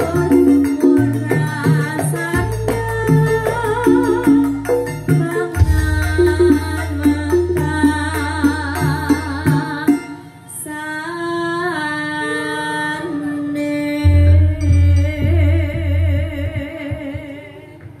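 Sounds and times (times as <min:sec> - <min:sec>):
live band with keyboard: 0:00.0 - 0:18.0
woman singing with vibrato: 0:00.0 - 0:18.0
deep bass beats: 0:04.0 - 0:08.1, 0:14.1 - 0:17.4.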